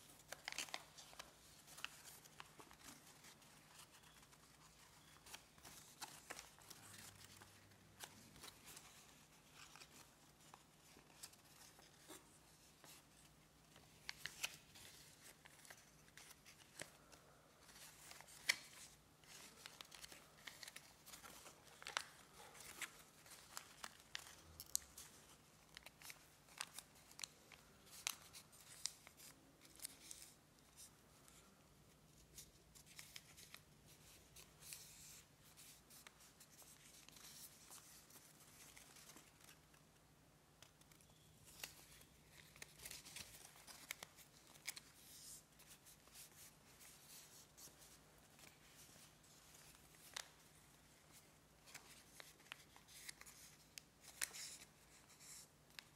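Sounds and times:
paper being folded and creased: 0:00.0 - 0:55.9
paper crackles: 0:00.1 - 0:31.4, 0:40.6 - 0:55.9.

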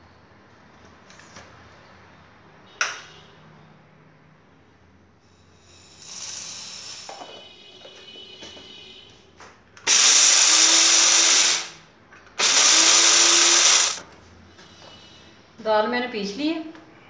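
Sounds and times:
spice grinder motor pulses: 0:05.8 - 0:07.1, 0:09.9 - 0:11.8, 0:12.4 - 0:14.0.

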